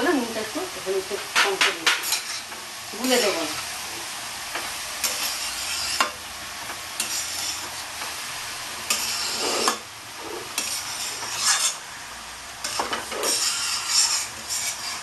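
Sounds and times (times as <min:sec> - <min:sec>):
frying sizzle: 0:00.0 - 0:15.0
spatula scraping a pan: 0:01.3 - 0:03.7, 0:05.0 - 0:12.0, 0:12.6 - 0:15.0.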